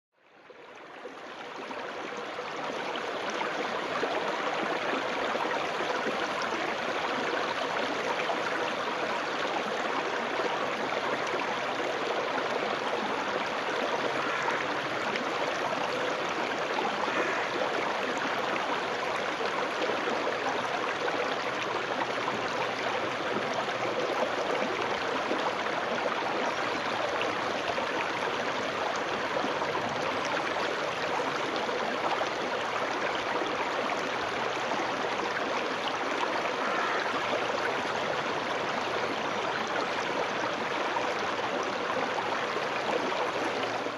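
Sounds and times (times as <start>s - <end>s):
stream babbling over stones: 0.4s - 43.9s.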